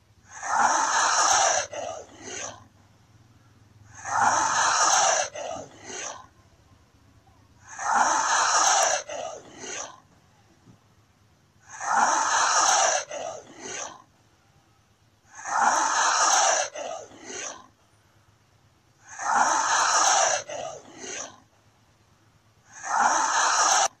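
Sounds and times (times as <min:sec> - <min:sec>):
lizard hissing: 0:00.3 - 0:02.6, 0:03.9 - 0:06.3, 0:07.6 - 0:10.0, 0:11.6 - 0:14.0, 0:15.3 - 0:17.7, 0:19.0 - 0:21.4, 0:22.6 - 0:24.0.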